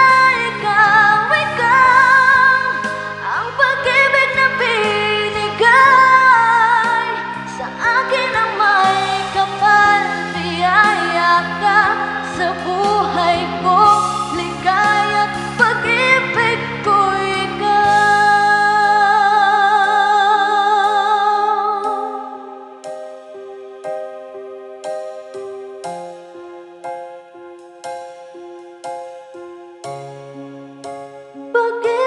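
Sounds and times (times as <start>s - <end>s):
person singing with vibrato: 0.0s - 22.9s
backing track of held chords: 0.0s - 32.0s.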